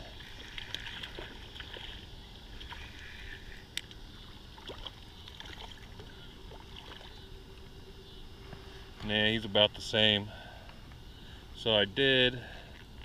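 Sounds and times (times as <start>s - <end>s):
fish splashing in water: 0.0s - 3.6s, 4.5s - 7.2s.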